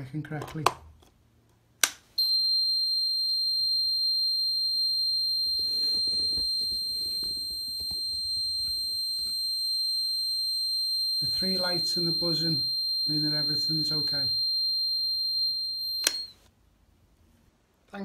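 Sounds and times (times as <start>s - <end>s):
socket tester high-pitched buzz: 2.2s - 16.5s.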